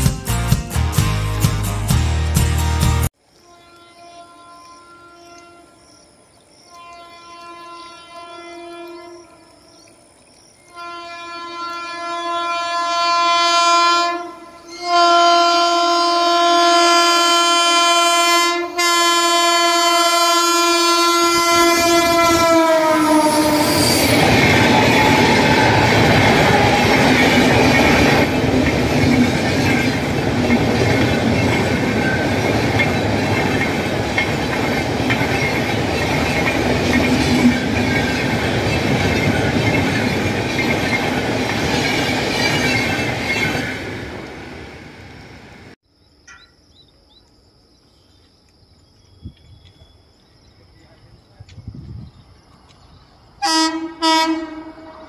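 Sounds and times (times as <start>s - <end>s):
locomotive horn: 3.4s - 6.0s, 6.6s - 9.6s, 10.7s - 28.3s, 53.4s - 55.0s
train coaches rumbling and clattering: 21.8s - 45.8s.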